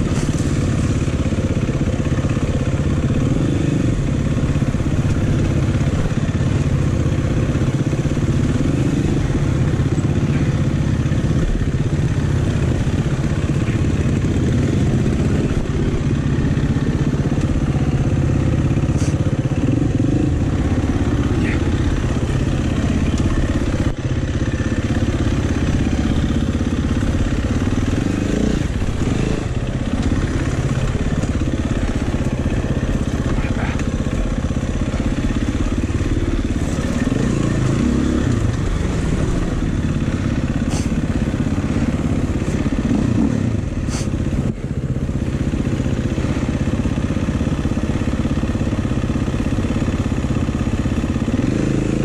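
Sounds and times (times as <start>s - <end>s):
dirt bike engine running: 0.0s - 52.0s.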